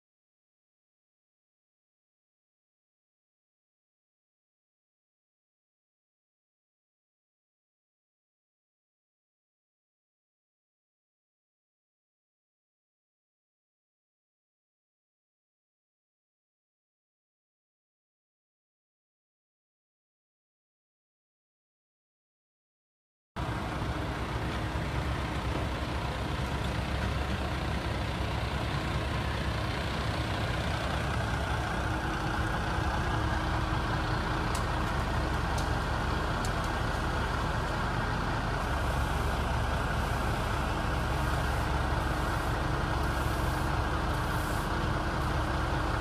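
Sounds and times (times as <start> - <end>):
excavator diesel engine rumbling: 23.4 - 46.0.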